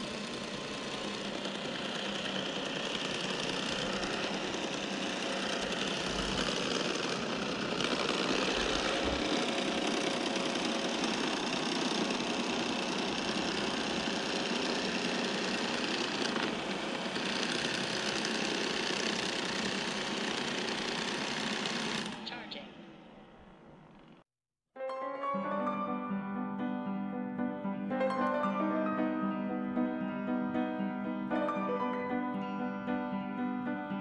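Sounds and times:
robot vacuum whirring: 0.0s - 22.5s.

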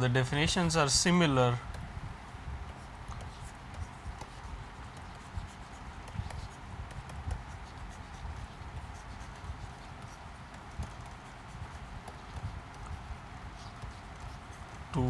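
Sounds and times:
low background rumble: 0.0s - 15.0s
stylus tapping on tablet screen: 2.7s - 13.0s.

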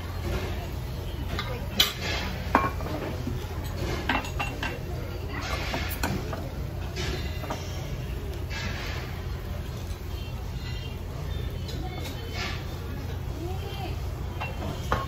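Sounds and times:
dishes and cutlery clinking: 1.3s - 7.8s, 14.3s - 15.0s.

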